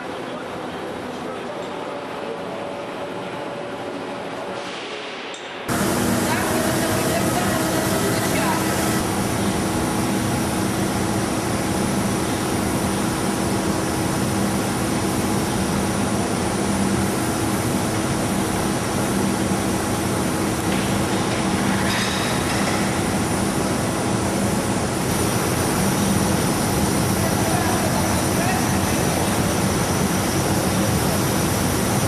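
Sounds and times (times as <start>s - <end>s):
shop machinery hum: 0.0s - 32.0s
paint sprayer hissing: 5.7s - 32.0s.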